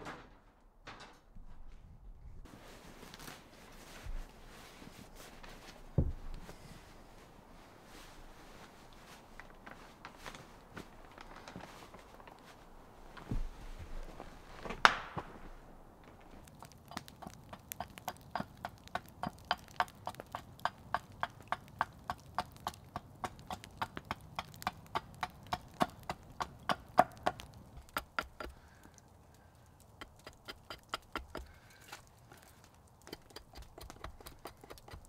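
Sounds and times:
axe chopping wood: 17.1s - 28.6s.

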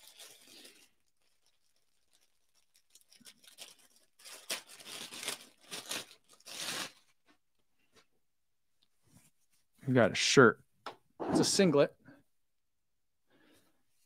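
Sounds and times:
packaging rustling and tearing: 0.0s - 7.3s.

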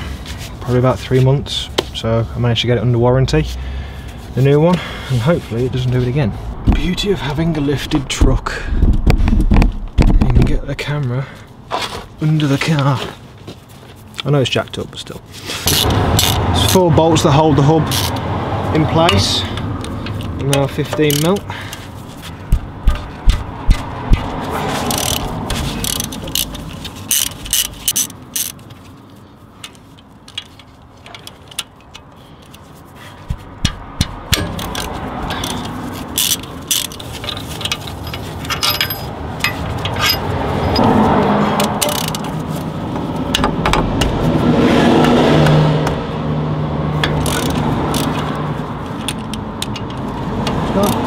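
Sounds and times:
metal hub scraping: 15.4s - 45.5s, 46.9s - 51.0s
motor vehicle running: 15.6s - 29.0s, 29.8s - 51.0s
metallic clicks of hand tools: 19.0s - 21.8s, 22.5s - 28.8s, 29.6s - 32.6s, 33.5s - 40.9s, 41.5s - 42.4s, 47.0s - 51.0s.

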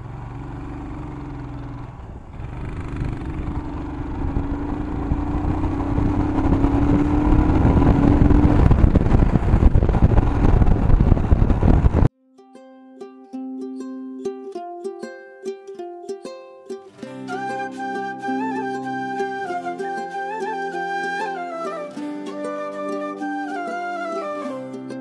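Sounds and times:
motorcycle engine accelerating: 0.0s - 12.1s
wind rush: 1.8s - 12.1s.

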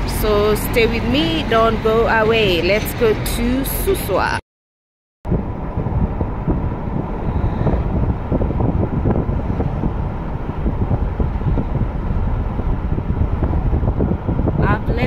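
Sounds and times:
road and engine noise: 0.0s - 4.4s, 5.3s - 15.0s
wind buffeting microphone: 0.0s - 4.4s, 5.3s - 15.0s.

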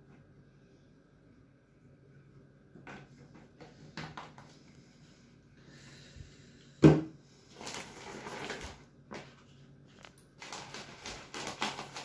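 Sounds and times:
heavy thump on tiled worktop: 6.8s - 7.2s
seed rustling and scraping: 7.5s - 8.8s
plastic bag handled: 7.5s - 12.0s.

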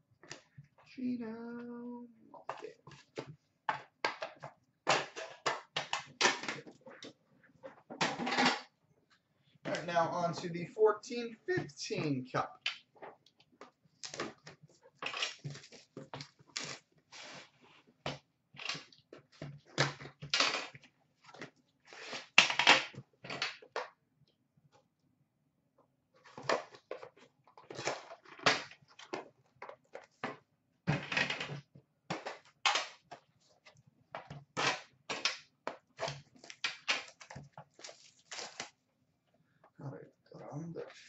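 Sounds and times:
packaging rustling and crinkling: 36.0s - 38.8s.

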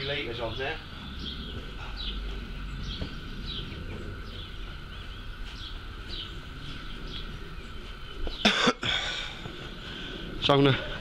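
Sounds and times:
small bird chirping: 0.0s - 8.5s
low outdoor rumble: 0.0s - 11.0s.

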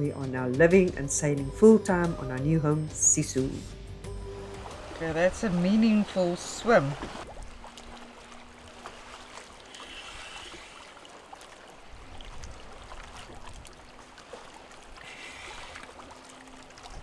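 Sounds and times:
water lapping against boat: 3.4s - 17.0s
swimmer splashing: 4.2s - 17.0s.

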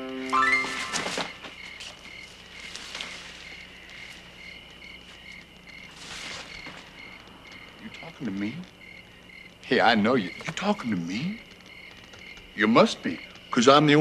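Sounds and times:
held music chord: 0.0s - 1.0s
crickets chirping: 0.0s - 14.0s.

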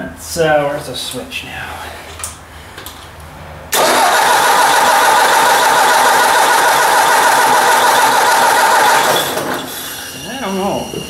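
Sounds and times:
starter motor cranking engine: 3.8s - 9.8s.

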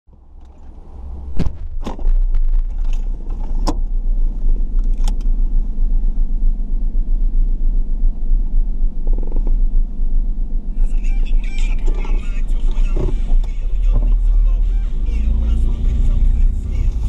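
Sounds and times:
car engine rumbling: 0.1s - 17.0s
sharp clicks and knocks: 1.4s - 3.9s, 4.7s - 5.3s.

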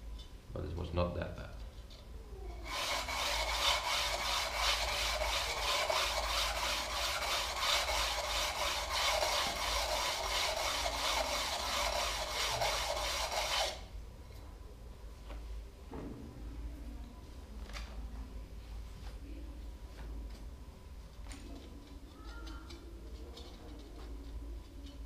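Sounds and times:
sharpening stone rasping on blade: 2.7s - 13.9s.

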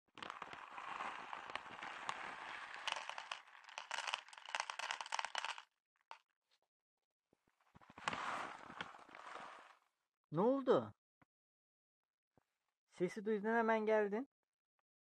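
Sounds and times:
kibble pouring into plastic bowl: 0.1s - 5.6s, 8.0s - 9.8s
plastic bag crinkling: 0.1s - 5.6s.

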